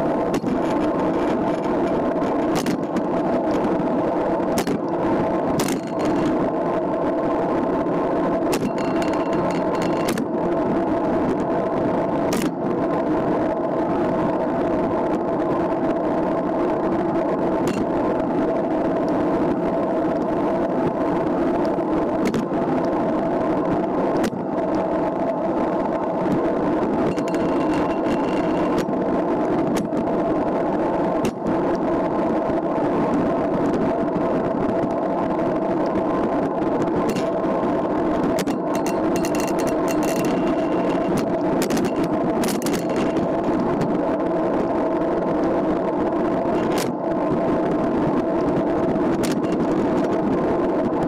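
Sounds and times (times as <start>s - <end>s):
bicycle road noise: 0.0s - 51.0s
bike tyre noise on asphalt: 0.0s - 51.0s
wind rush: 0.0s - 51.0s
clicks from bumps: 4.5s - 5.0s, 5.6s - 6.4s, 8.5s - 10.3s, 26.3s - 28.9s, 38.2s - 43.9s.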